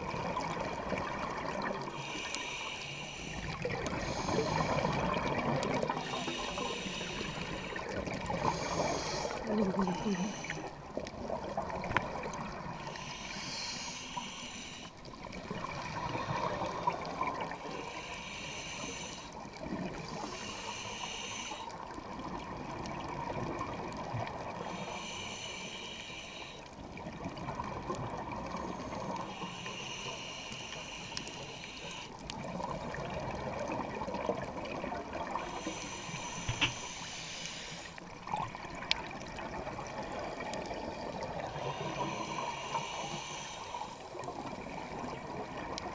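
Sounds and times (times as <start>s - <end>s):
bubbles gurgling and hissing: 0.0s - 45.9s
steady underwater rush: 0.0s - 45.9s
diver breathing through regulator: 1.8s - 10.8s, 12.8s - 15.2s, 17.5s - 21.8s, 24.6s - 26.8s, 28.5s - 32.4s, 35.2s - 38.1s, 40.0s - 44.3s.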